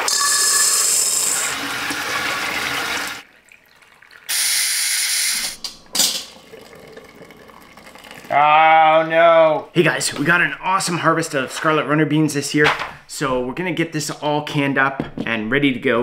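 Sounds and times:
steam hissing: 0.0s - 1.6s, 4.3s - 5.6s.

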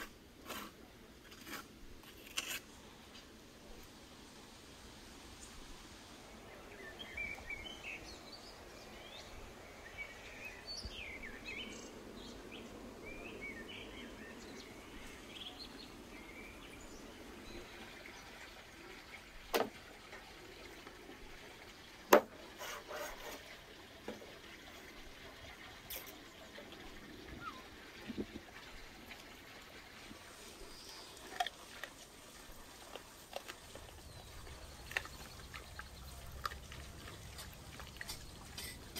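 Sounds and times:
rushing water: 4.0s - 38.9s
small birds chirping: 6.3s - 19.5s, 25.6s - 28.3s, 32.5s - 38.9s.

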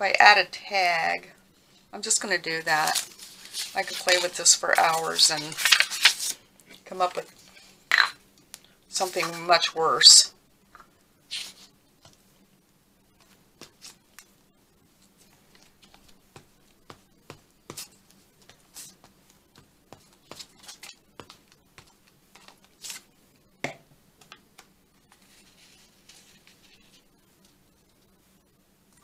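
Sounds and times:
faint steady hum: 0.0s - 29.0s
paper rustling: 2.6s - 7.7s, 11.3s - 11.7s, 19.9s - 23.1s, 25.0s - 27.6s
paper rubbing: 2.8s - 6.4s, 11.3s - 11.7s, 25.0s - 27.1s.

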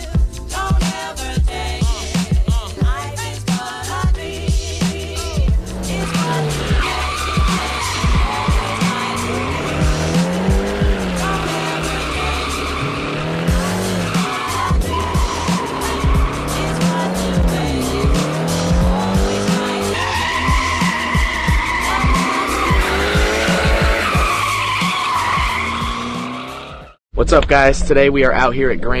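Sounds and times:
music: 0.0s - 27.4s
car engine revving: 4.2s - 27.0s
tyres squealing: 5.5s - 27.0s.

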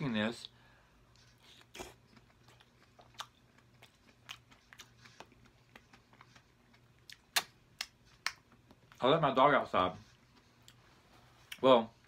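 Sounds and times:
low steady hum: 0.0s - 12.0s
chewing and lip-smacking: 1.1s - 9.0s.

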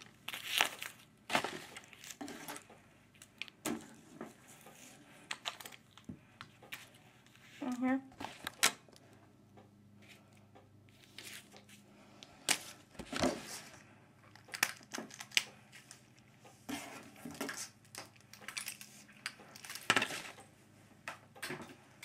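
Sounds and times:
cardboard box and packing handled: 0.0s - 2.6s.

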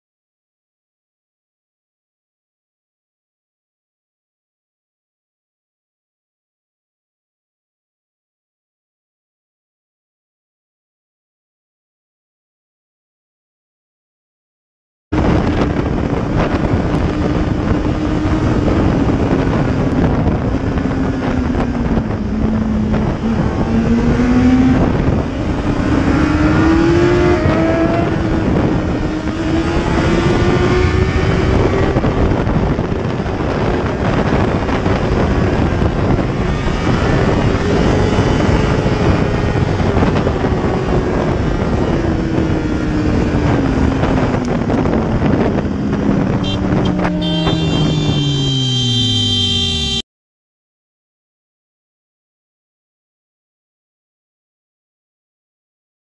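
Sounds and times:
wind and road noise: 15.1s - 50.0s
motorcycle engine at high revs: 15.3s - 50.0s.

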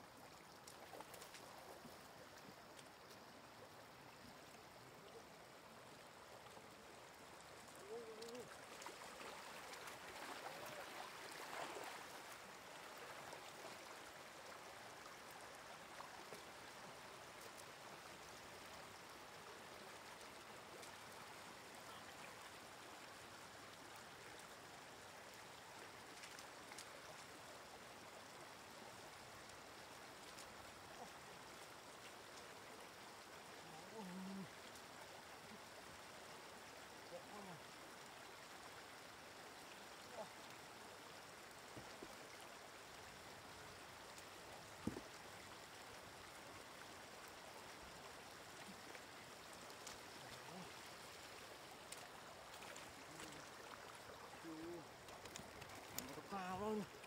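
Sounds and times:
floodwater rushing over road: 5.4s - 23.2s
splashing of wading: 7.4s - 17.7s, 47.2s - 57.0s.

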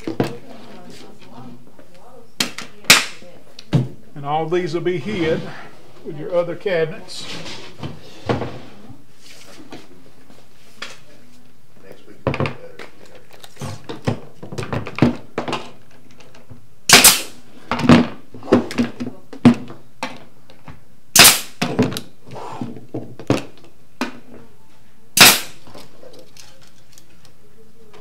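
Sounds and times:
loud sharp cracks: 2.4s - 3.2s, 16.9s - 17.4s, 21.1s - 21.7s, 25.2s - 25.7s.

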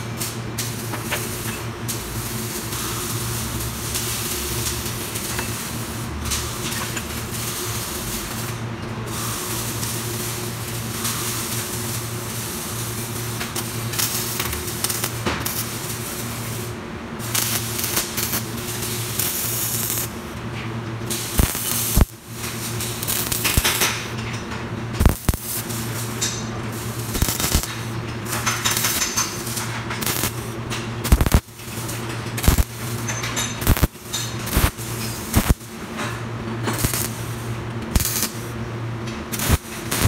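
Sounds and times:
welding hiss: 0.0s - 20.4s, 21.1s - 24.2s, 25.0s - 36.0s, 36.6s - 38.6s, 39.2s - 40.0s
electrical hum: 9.4s - 40.0s.

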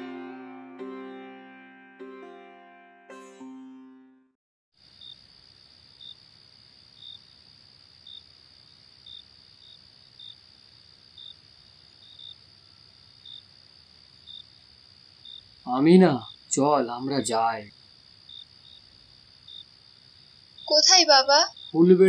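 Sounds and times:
cricket chirps: 4.8s - 22.0s
crickets trilling: 4.8s - 22.0s.

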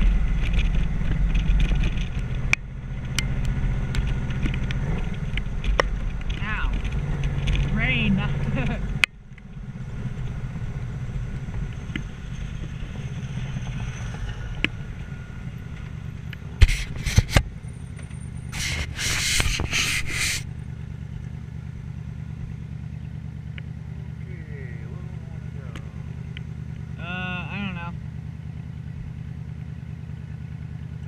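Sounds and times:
motorcycle engine running: 0.0s - 31.0s
loud rushing scraping noise: 12.9s - 17.4s, 18.5s - 20.5s.

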